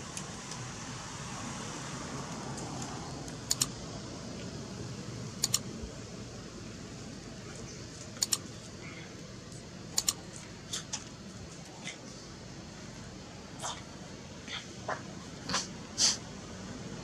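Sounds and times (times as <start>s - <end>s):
low background hum: 0.0s - 17.0s
mouse clicks: 3.5s - 3.7s, 5.4s - 5.6s, 8.2s - 8.4s, 10.0s - 10.2s.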